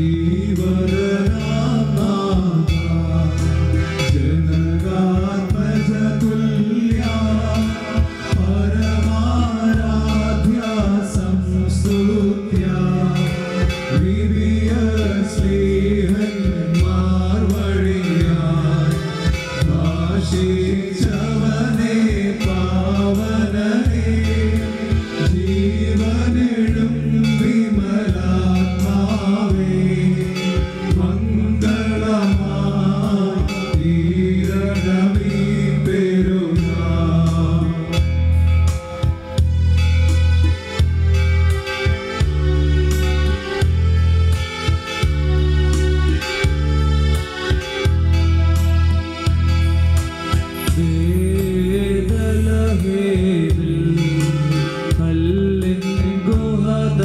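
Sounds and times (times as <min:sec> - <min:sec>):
person singing: 0:00.0 - 0:39.4, 0:50.2 - 0:57.0
instrumental backing with bass chords: 0:00.0 - 0:57.0.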